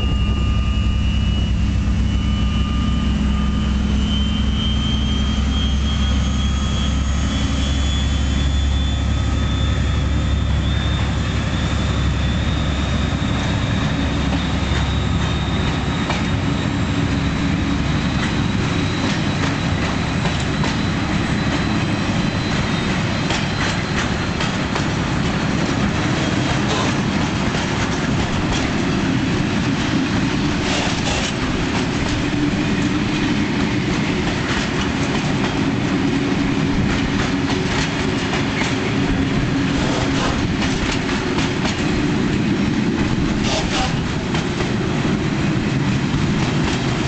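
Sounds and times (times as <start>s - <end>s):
diesel locomotive engine drone: 0.0s - 47.0s
train wheels clattering over rail joints: 14.0s - 47.0s.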